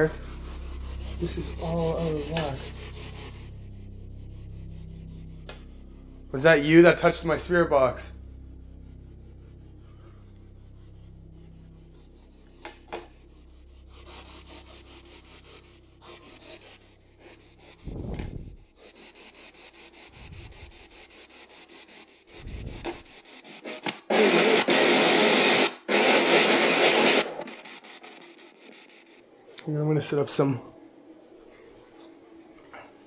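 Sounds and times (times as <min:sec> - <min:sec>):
rasping radio static hiss: 0:00.0 - 0:29.3.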